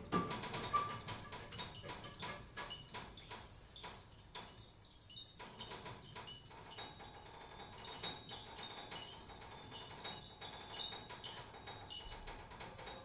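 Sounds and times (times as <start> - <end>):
high struck ringing sounds: 0.0 - 6.6.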